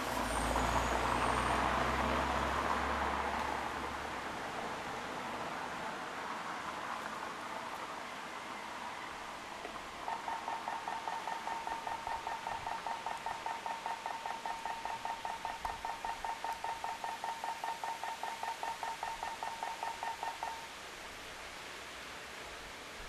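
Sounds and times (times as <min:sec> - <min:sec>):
rapid electronic beeping: 0:10.0 - 0:20.6.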